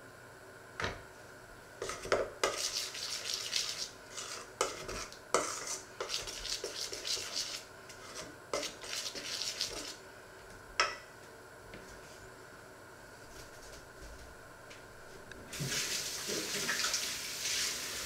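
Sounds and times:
spoon scraping steel bowl: 1.8s - 10.0s.

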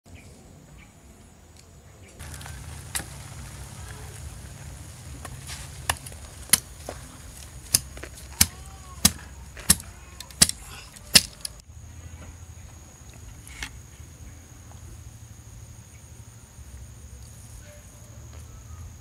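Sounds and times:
low steady rumble: 2.2s - 18.2s
machete chopping wood: 5.2s - 11.6s.

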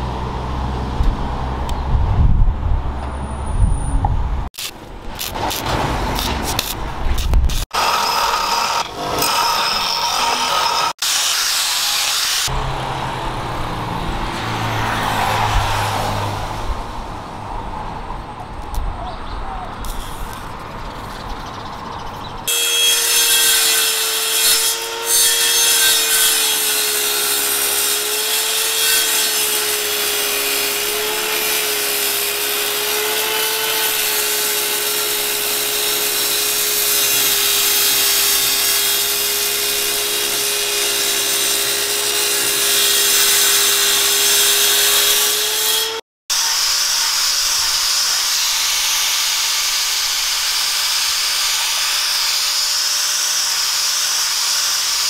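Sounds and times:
angle grinder hissing whir: 6.6s - 12.6s, 46.3s - 55.0s
table saw cutting wood: 7.6s - 16.4s, 22.5s - 55.0s.

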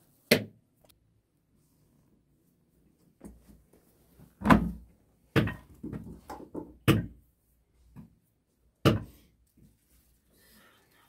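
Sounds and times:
rustling and shuffling on mat: 1.4s - 6.3s, 7.2s - 11.0s
dull knocks and thumps: 4.4s - 7.2s.

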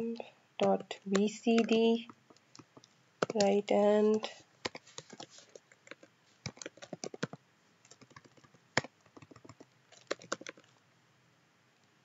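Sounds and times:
keyboard typing: 0.6s - 10.8s.

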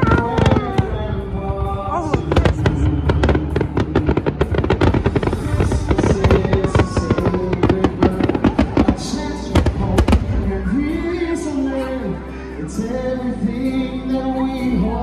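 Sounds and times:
fireworks bursting: 0.0s - 11.6s
music: 0.0s - 15.0s.

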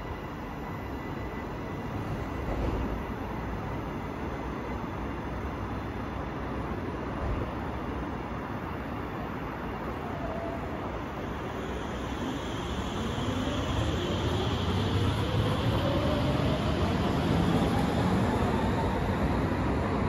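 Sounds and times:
train rolling noise: 0.0s - 20.0s
electric train motors whining: 11.2s - 19.4s.

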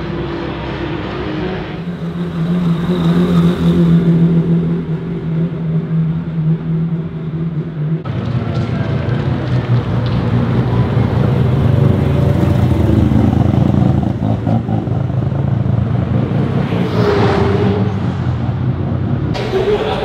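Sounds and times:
distant car engines: 0.0s - 20.0s
rotary engine droning: 0.0s - 20.0s
rough low rotary engine: 0.0s - 20.0s.

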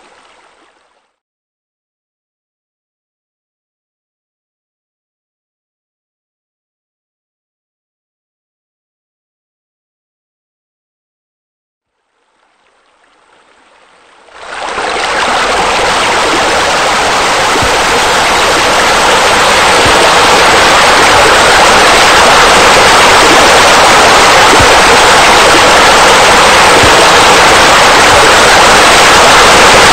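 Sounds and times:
rush of falling water: 12.4s - 29.9s.

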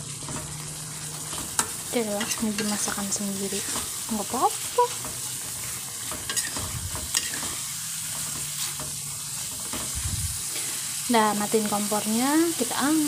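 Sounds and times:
food sizzling in a pan: 0.0s - 13.0s
metal spoon stirring: 0.2s - 10.0s
spoon scraping a pan: 0.2s - 11.0s.

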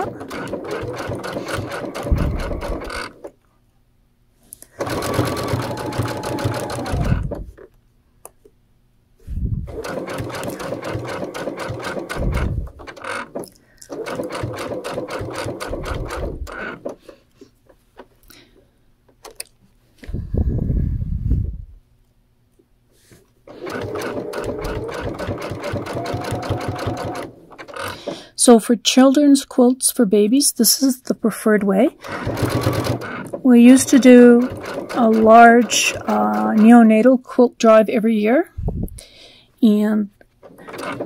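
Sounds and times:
sewing machine stitching: 0.0s - 3.3s, 4.8s - 7.6s, 9.7s - 17.1s, 23.5s - 28.3s, 32.0s - 36.8s, 40.4s - 41.0s.

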